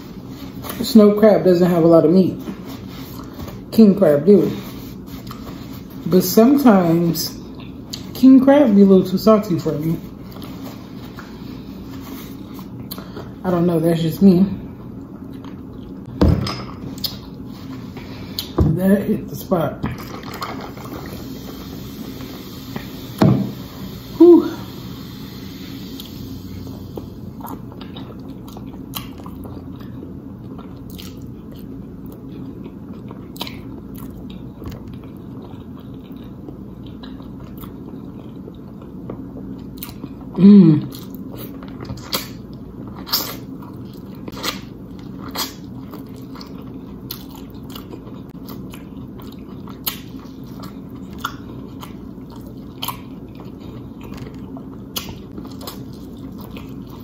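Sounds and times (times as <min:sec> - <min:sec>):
person humming mm: 0:24.0 - 0:24.9, 0:40.4 - 0:40.9
mouth smacking and chewing: 0:27.4 - 0:57.0.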